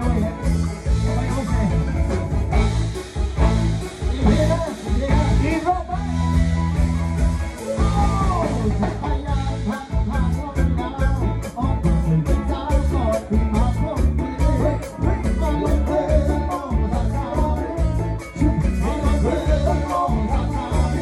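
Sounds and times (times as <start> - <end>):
man singing into a microphone: 0.0 - 1.9, 3.8 - 6.6, 7.6 - 21.0
bass and drum beat: 0.0 - 21.0
live band playing: 0.0 - 21.0.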